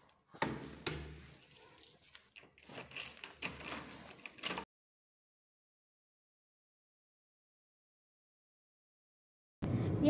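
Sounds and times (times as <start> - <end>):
keys jangling on a ring: 1.2 - 4.6.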